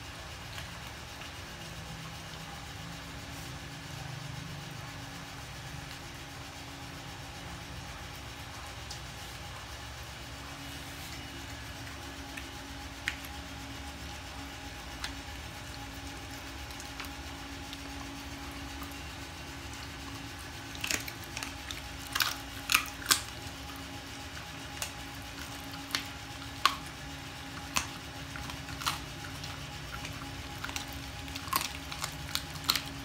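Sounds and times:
electric fan hum: 0.0 - 33.0
dog crunching bones: 11.1 - 33.0.

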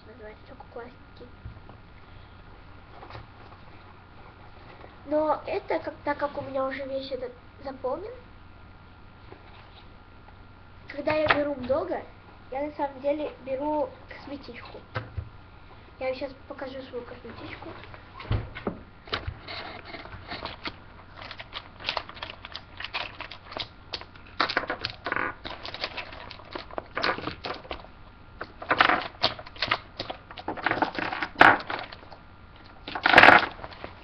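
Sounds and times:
rustling and crinkling by hand: 16.7 - 34.0.

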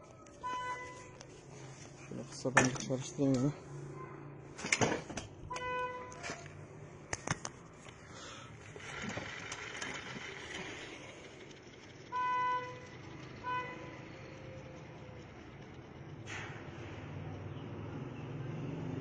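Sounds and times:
spinning wheel gear whirr: 7.9 - 18.4.

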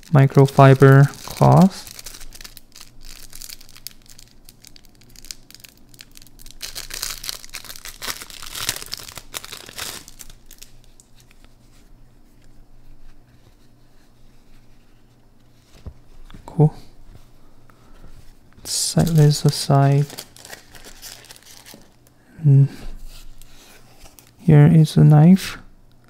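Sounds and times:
plastic bag rustling and crackling: 0.0 - 11.6, 18.2 - 22.1.

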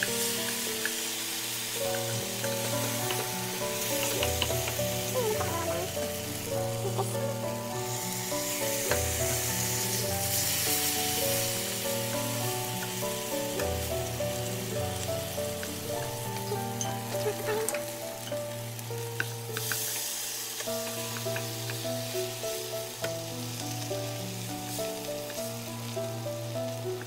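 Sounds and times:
meat sizzling in a frying pan: 0.0 - 27.0
soft piano music: 0.0 - 27.0
tongs clicking against pan: 1.9 - 5.5, 19.2 - 21.8.

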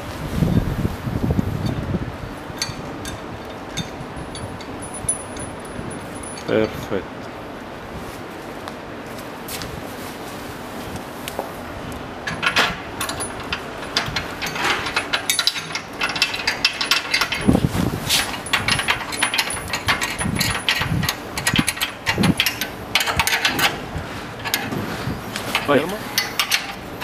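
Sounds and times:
metallic clicks and scrapes: 12.3 - 27.0.

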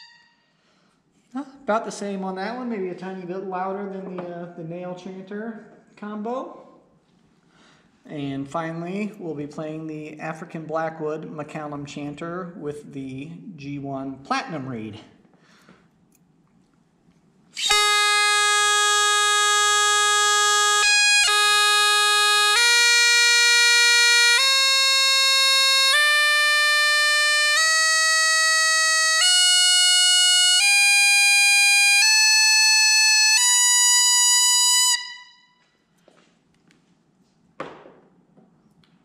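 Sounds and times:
bagpipe chanter held notes: 0.0 - 0.6, 17.6 - 35.7.

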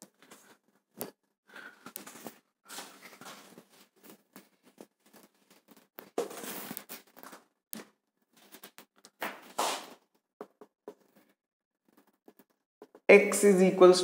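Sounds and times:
marker scraping on whiteboard: 9.5 - 13.0.

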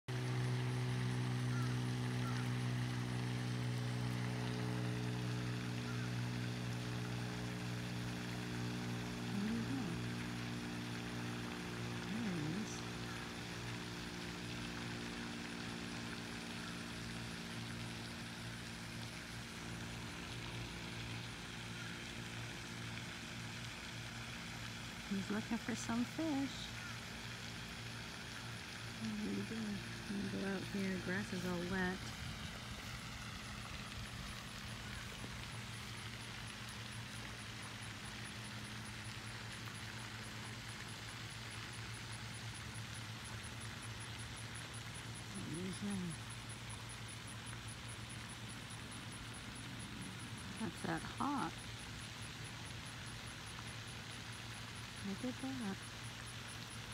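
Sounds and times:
low mechanical hum: 0.0 - 56.9
faint outdoor background noise: 0.1 - 56.9.

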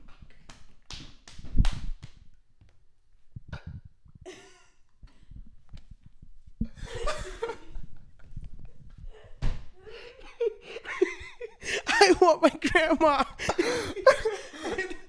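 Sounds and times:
person laughing breathily: 4.3 - 5.3, 6.6 - 8.4, 9.0 - 15.0.

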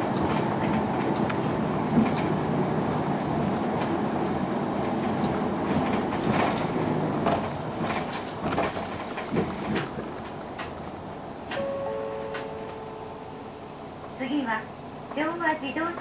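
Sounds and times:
bus diesel engine running: 0.0 - 16.0
road noise: 0.0 - 16.0.

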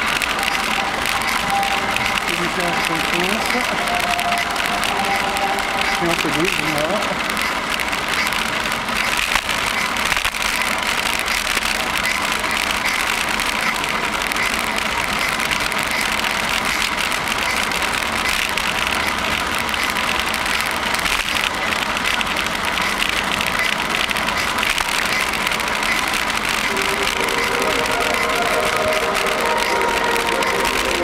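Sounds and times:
bicycle tyres on pavement: 0.0 - 31.0.

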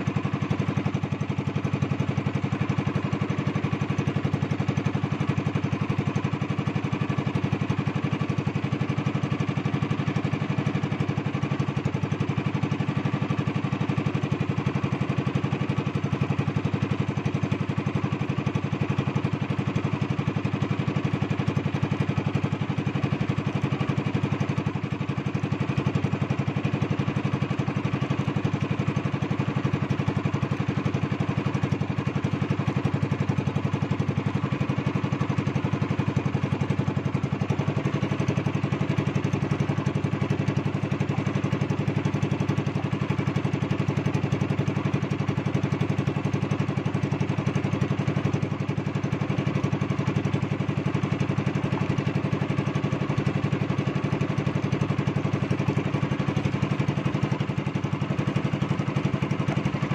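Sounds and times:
boat engine running: 0.0 - 59.9.

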